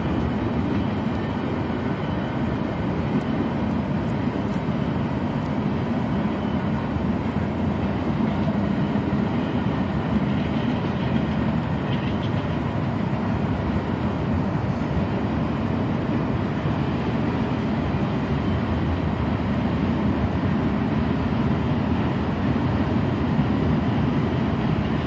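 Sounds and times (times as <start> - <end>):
freight train wheels rumbling: 0.0 - 25.0.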